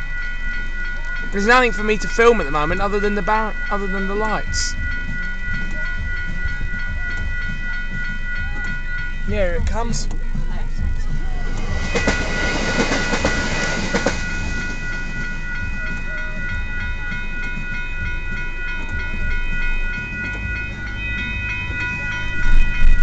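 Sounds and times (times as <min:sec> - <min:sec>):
level crossing bells ringing: 0:00.0 - 0:23.0
low rumble: 0:00.0 - 0:23.0
train wheels clacking on rails: 0:00.0 - 0:23.0.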